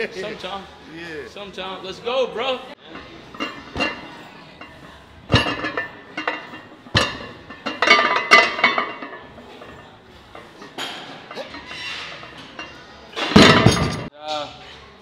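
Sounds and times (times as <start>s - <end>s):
barbell plates clanking: 2.9s - 14.1s.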